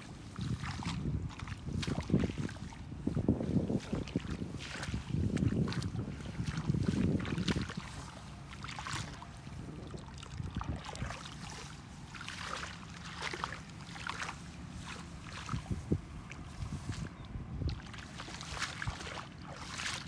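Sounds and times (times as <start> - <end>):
hands rustling wet grass: 0.0 - 20.0
low microphone rumble: 0.0 - 20.0
mud squelching: 0.0 - 20.0.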